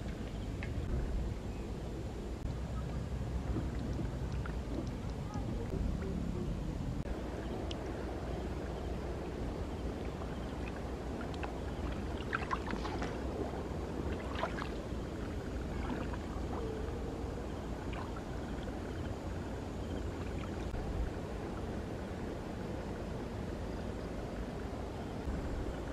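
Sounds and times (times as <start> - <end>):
steady low rumble: 0.0 - 25.9
water sloshing and splashing: 2.7 - 6.2, 7.0 - 23.1.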